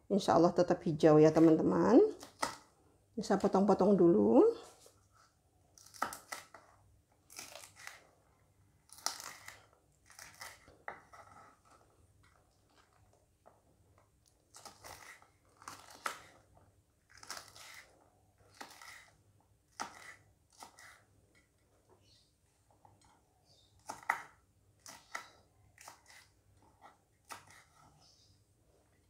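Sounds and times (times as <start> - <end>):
knife slicing on wooden board: 18.5 - 21.1.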